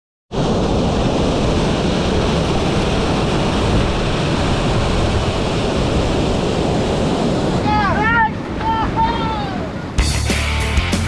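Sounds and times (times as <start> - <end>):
waterfall rushing: 0.4 - 10.8.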